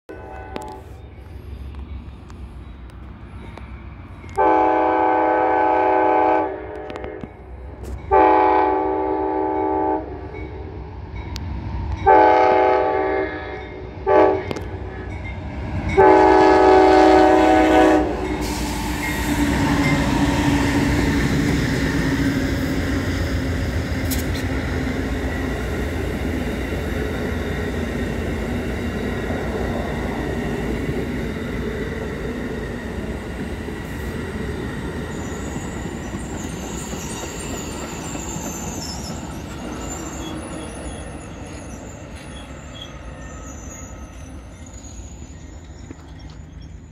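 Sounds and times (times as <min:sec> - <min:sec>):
train horn blasts: 0:00.1 - 0:01.0, 0:04.3 - 0:07.4, 0:08.1 - 0:10.3, 0:12.0 - 0:15.1, 0:15.9 - 0:20.6
train rumbling past on rails: 0:00.1 - 0:46.9.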